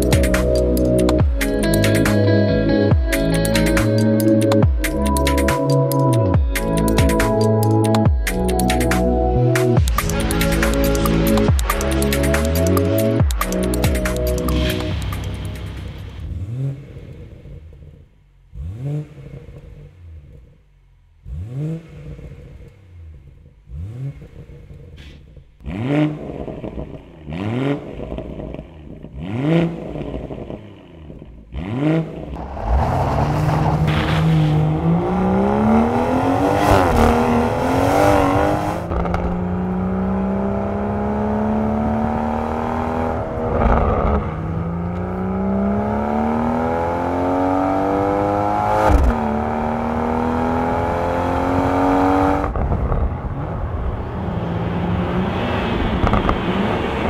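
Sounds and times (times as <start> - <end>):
car engine accelerating through gears: 0.0 - 57.0
car engine throttle blips: 0.0 - 57.0
exhaust crack: 8.7 - 41.0, 41.9 - 45.5, 48.6 - 49.8, 52.3 - 57.0.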